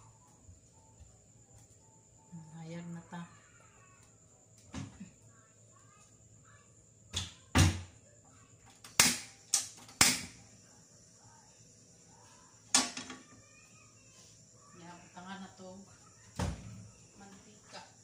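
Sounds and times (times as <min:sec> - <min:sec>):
stove spark igniter clicking: 0:08.8 - 0:10.4.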